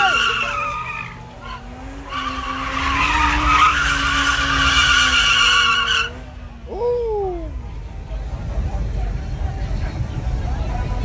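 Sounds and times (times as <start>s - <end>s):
car tyres squealing: 0.0s - 7.6s.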